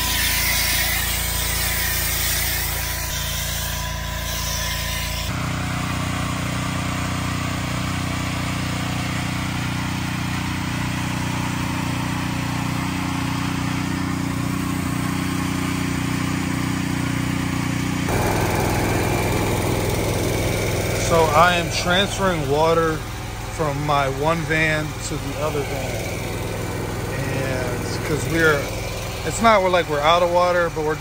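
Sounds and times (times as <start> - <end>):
pressure washer engine running: 0.0 - 31.0
water spray hissing: 18.1 - 29.7.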